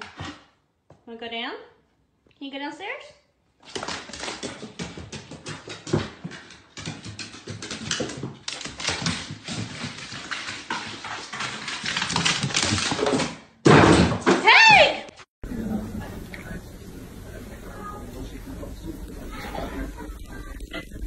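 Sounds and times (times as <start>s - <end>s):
dog claws on wooden stairs: 3.6s - 14.4s.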